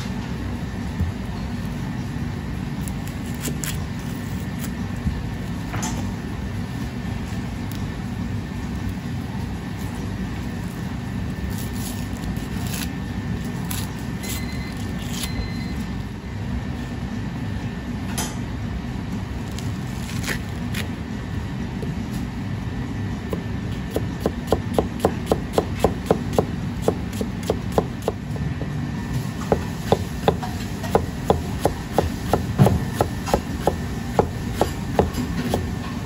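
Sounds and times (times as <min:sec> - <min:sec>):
low background hum: 0:00.0 - 0:36.0
knife chopping onion on board: 0:23.3 - 0:28.7, 0:29.4 - 0:36.0.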